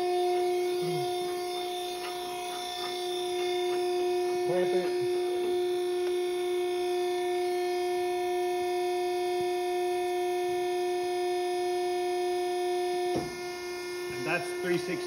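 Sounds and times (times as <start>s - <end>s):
ironworker shear humming: 0.0s - 10.8s, 13.0s - 15.0s.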